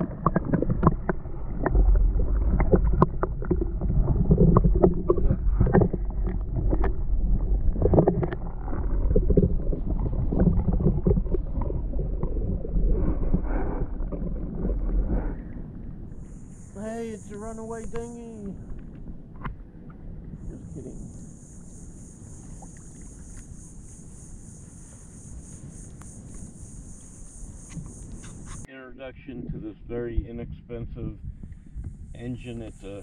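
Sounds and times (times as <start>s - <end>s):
water sloshing and splashing: 0.0s - 21.4s
low rumble: 0.0s - 33.0s.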